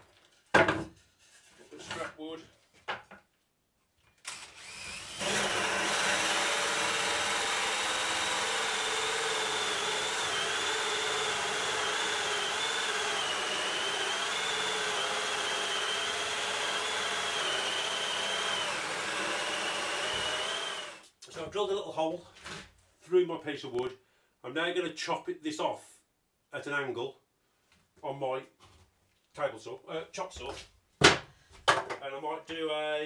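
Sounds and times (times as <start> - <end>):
cordless drill boring wood: 4.2 - 21.1.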